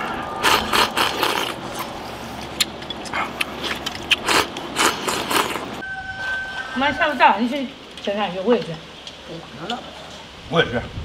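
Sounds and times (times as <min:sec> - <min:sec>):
person chewing: 0:00.0 - 0:05.8.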